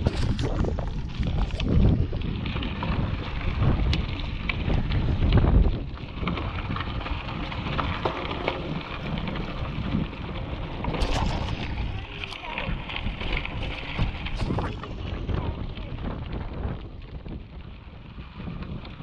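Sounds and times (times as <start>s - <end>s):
tyres crunching on gravel: 0.0s - 17.7s
bike clicks and rattles: 0.0s - 19.0s
wind buffeting microphone: 0.0s - 19.0s.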